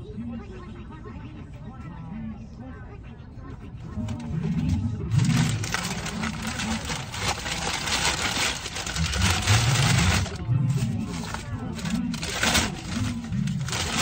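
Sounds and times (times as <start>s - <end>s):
paper bag crinkling: 5.1s - 14.0s.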